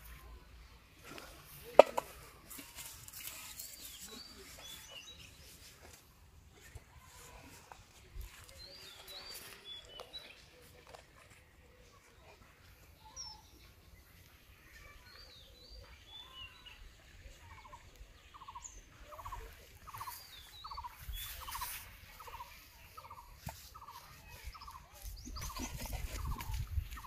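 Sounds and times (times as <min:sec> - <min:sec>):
birds chirping: 0:12.9 - 0:27.0.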